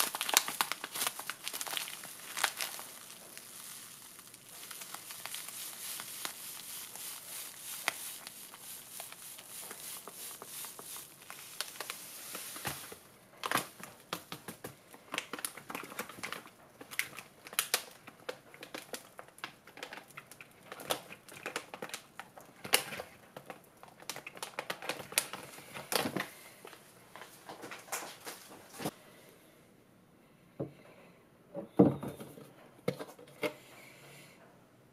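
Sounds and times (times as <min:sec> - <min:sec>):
seasoning granules shaken out: 0:00.0 - 0:13.0
plastic packet crinkling: 0:00.0 - 0:26.3.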